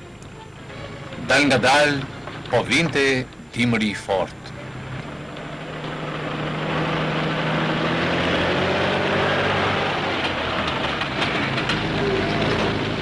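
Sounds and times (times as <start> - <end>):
truck engines droning: 0.0 - 13.0.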